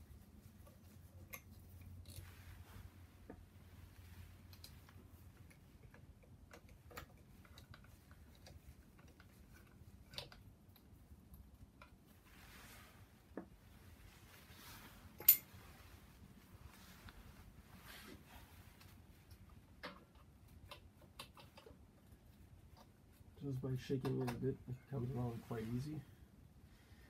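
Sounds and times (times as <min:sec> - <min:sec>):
fabric rustling: 0:12.1 - 0:19.5
metal parts and tools clicking: 0:15.2 - 0:15.5.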